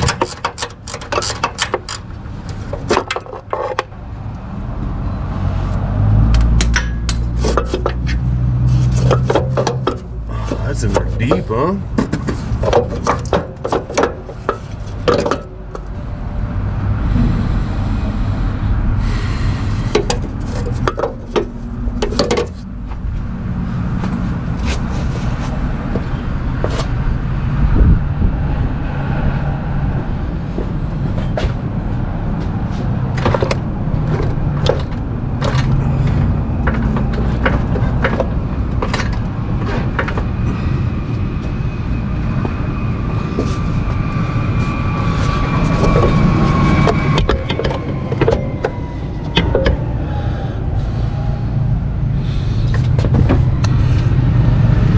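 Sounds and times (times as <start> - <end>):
low mechanical rumble: 0.0 - 54.9
hand tools knocking on metal: 6.4 - 8.2.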